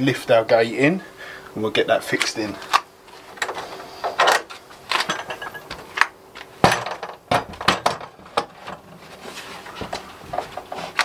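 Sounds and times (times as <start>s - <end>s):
wooden gate knocking and clunking: 6.6s - 8.5s.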